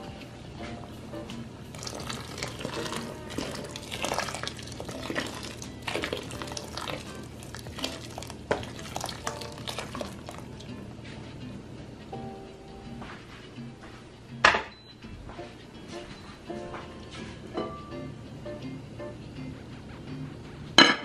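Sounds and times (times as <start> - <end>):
background music: 0.0 - 21.0
water pouring into a pot: 1.7 - 10.7.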